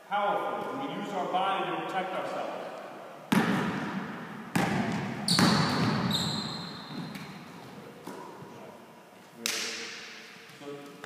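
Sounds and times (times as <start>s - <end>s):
basketball bouncing on gym floor: 3.3s - 8.3s.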